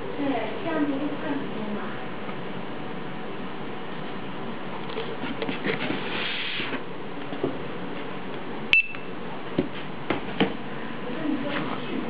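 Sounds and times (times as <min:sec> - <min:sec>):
barcode scanner beep: 0:08.7 - 0:09.1.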